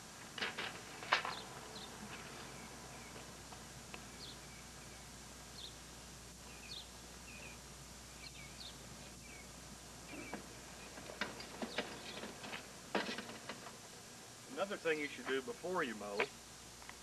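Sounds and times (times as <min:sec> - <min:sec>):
birds chirping: 0:01.2 - 0:03.3, 0:04.0 - 0:05.8, 0:06.4 - 0:12.4.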